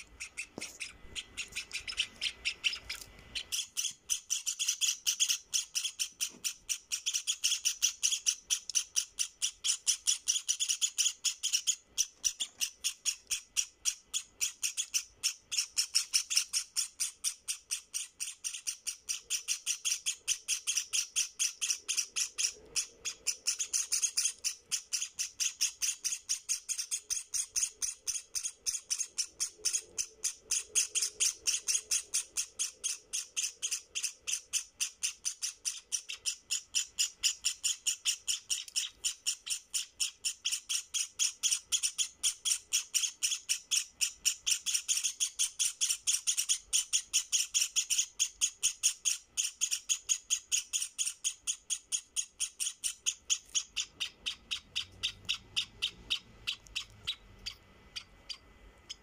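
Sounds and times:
chicks begging cheeps: 0.0 - 59.0.

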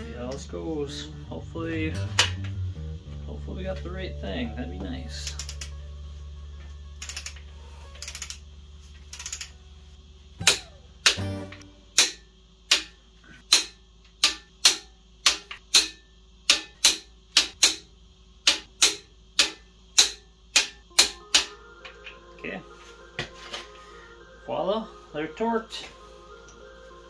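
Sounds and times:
torque wrench metallic clicks: 5.2 - 5.7, 7.0 - 7.4, 8.0 - 8.4, 9.1 - 9.5
torque wrench ratcheting: 5.2 - 5.7, 7.0 - 7.4, 8.0 - 8.4, 9.1 - 9.5.

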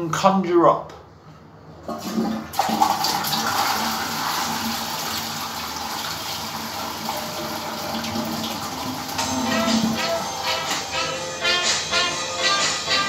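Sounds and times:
toilet flushing: 1.8 - 11.1.

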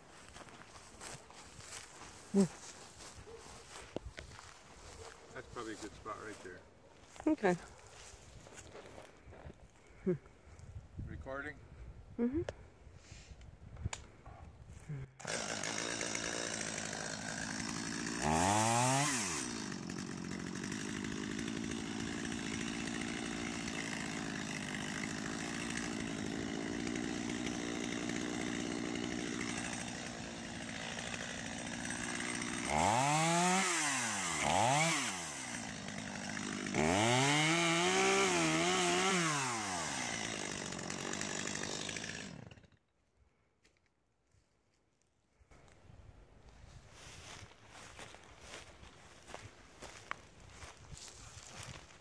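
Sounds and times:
chainsaw revving and cutting: 0.4 - 6.5, 15.1 - 42.8.

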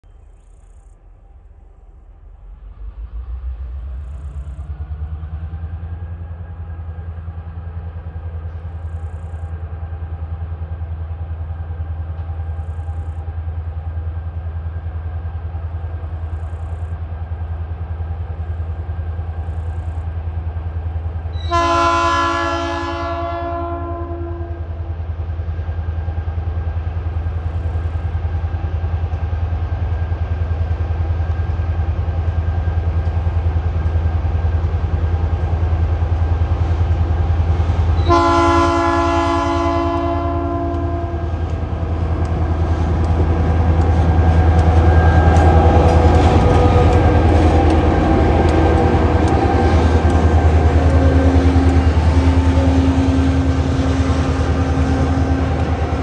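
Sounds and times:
locomotive low drone: 0.0 - 56.0
locomotive horn chord: 21.4 - 24.7, 38.0 - 41.5.

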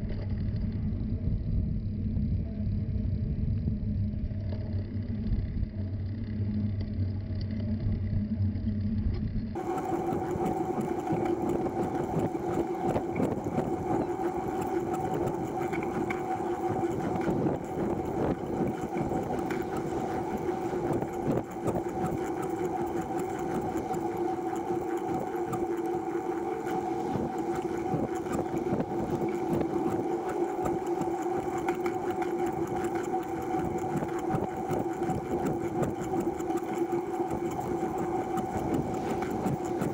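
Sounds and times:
two-tone hum: 0.0 - 39.9
tricycle drivetrain whir: 9.6 - 39.9.

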